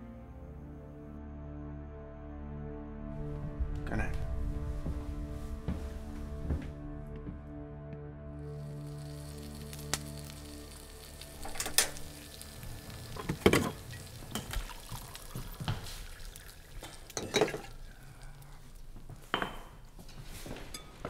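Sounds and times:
music: 0:00.0 - 0:16.2, 0:16.8 - 0:21.0
utensils clinking on pans and dishes: 0:11.4 - 0:12.1, 0:13.2 - 0:16.2, 0:16.8 - 0:17.8, 0:19.2 - 0:21.0.

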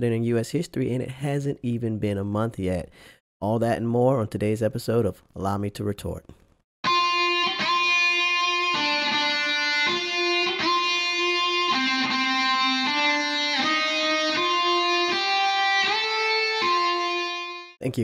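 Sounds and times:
guitar melody: 0:06.8 - 0:17.8.

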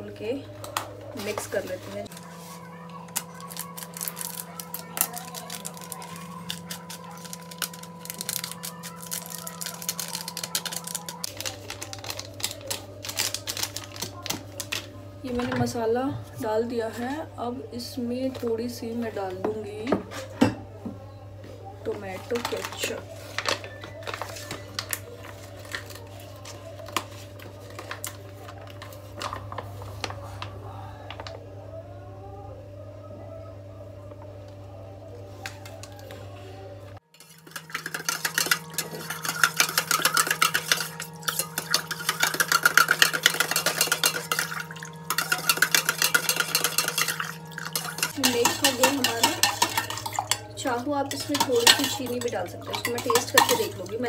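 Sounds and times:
plastic sachet crinkling: 0:01.2 - 0:14.9, 0:22.2 - 0:30.6.

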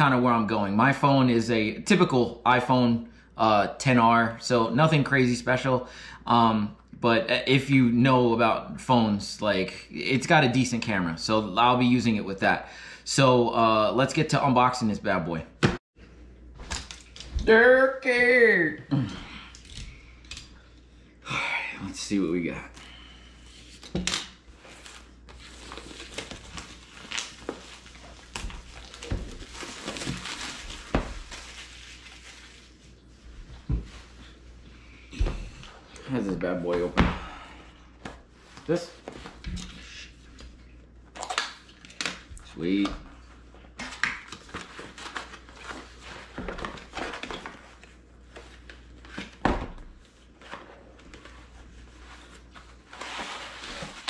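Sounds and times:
shrink-wrap crinkling: 0:23.6 - 0:33.0.

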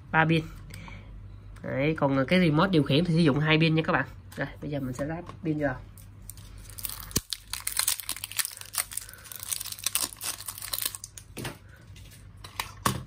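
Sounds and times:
plastic wrapping crinkling and tearing: 0:06.0 - 0:11.5.

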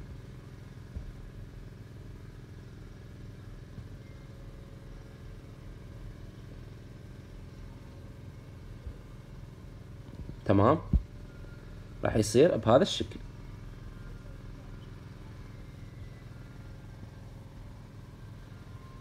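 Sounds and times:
low background hum: 0:00.0 - 0:19.0.

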